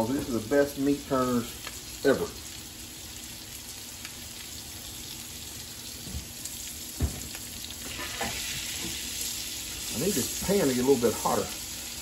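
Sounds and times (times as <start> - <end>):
meat sizzling in butter: 0.0 - 12.0.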